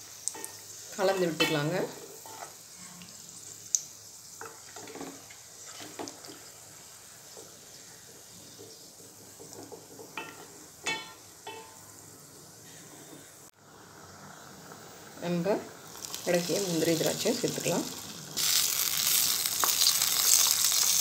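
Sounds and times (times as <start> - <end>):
faint steady hiss: 0.0 - 21.0
spatula tapping metal pot: 8.5 - 11.8.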